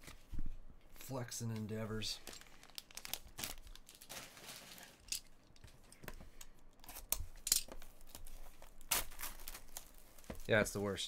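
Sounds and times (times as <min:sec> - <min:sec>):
foil wrapper crinkling and tearing: 0:02.2 - 0:05.0, 0:08.0 - 0:10.5.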